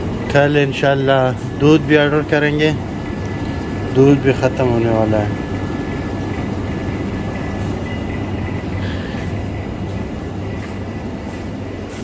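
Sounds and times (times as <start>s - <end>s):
display coolers humming: 0.0s - 12.0s
thin high whine: 0.0s - 12.0s.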